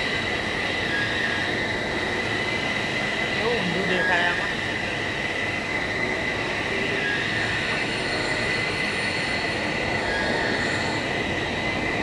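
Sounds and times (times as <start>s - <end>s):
high-pitched whine: 0.0s - 12.0s.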